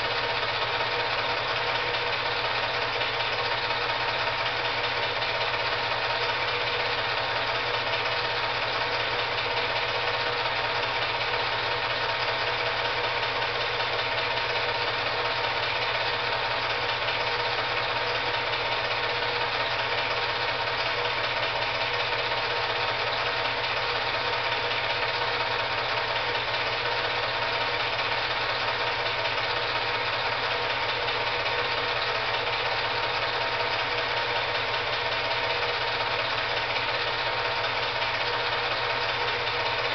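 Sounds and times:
film projector whirring: 0.0s - 39.9s.

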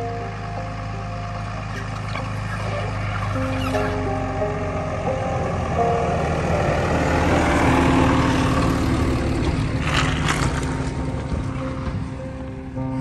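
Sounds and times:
truck engine rumble: 0.0s - 13.0s.

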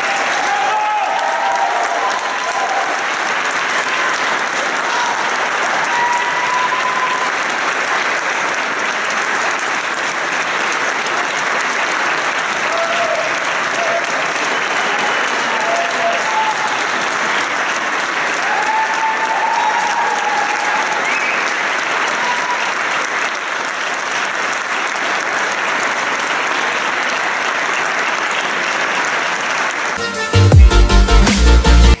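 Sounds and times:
audience applauding: 0.0s - 30.7s
electronic music with heavy bass: 30.0s - 32.0s.

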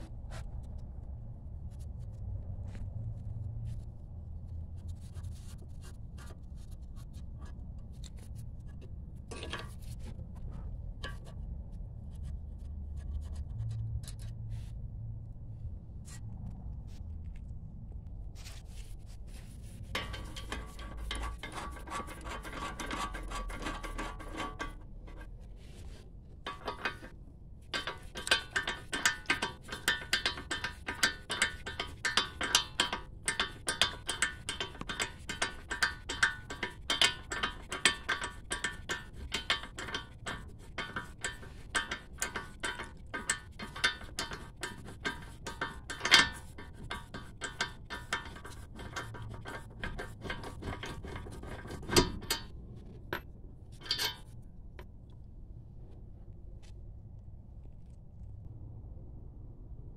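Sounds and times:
metal knocks: 27.7s - 54.3s.

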